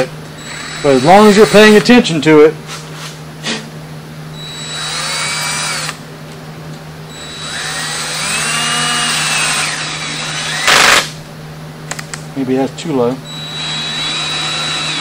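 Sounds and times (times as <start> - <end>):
cordless drill motor: 0.4 - 2.0, 4.4 - 6.0, 7.1 - 11.1, 13.2 - 15.0.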